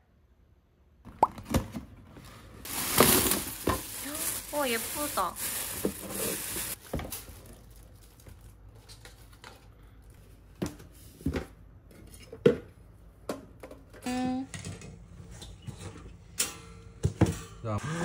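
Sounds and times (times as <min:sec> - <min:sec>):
cardboard packaging rustling: 0:02.4 - 0:09.6.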